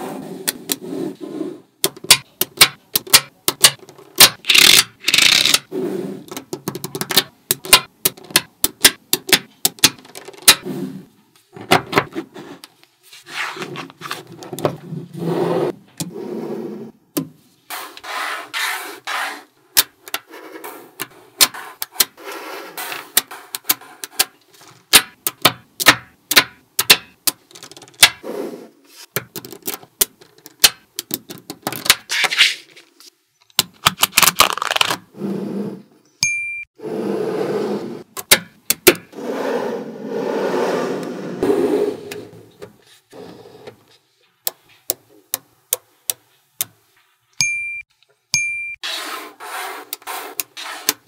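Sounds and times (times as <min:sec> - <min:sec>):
magnetic balls clicking together: 0:01.8 - 0:05.7
magnetic balls rattling and rubbing: 0:03.7 - 0:08.4, 0:27.4 - 0:28.2.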